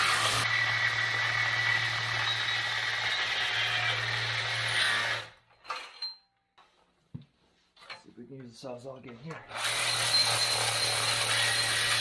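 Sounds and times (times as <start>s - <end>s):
reciprocating saw cutting metal: 0.0s - 5.4s, 9.5s - 12.0s.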